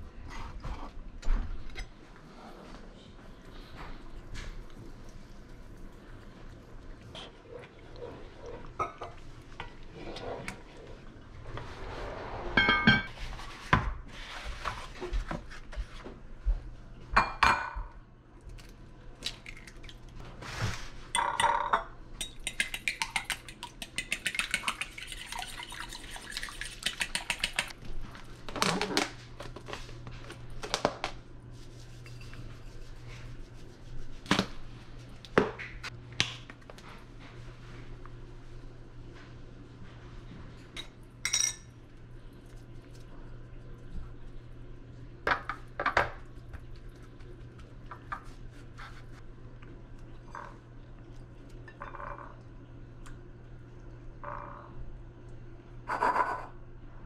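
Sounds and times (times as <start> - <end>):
dishes clattering and clinking: 8.7 - 9.8, 12.5 - 13.2, 17.2 - 17.9, 21.2 - 24.8, 40.8 - 41.8, 55.9 - 56.6
fork beating eggs in bowl: 22.2 - 27.8.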